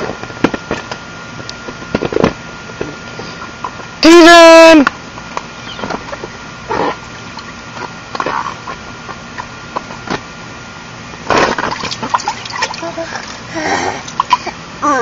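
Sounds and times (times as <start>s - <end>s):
water splash: 11.3s - 12.9s
water sloshing: 11.3s - 13.4s.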